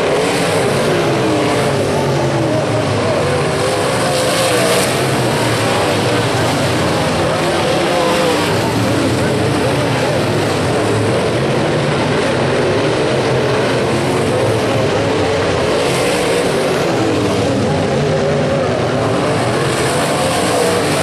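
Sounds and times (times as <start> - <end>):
race car engines running hard: 0.0 - 21.0.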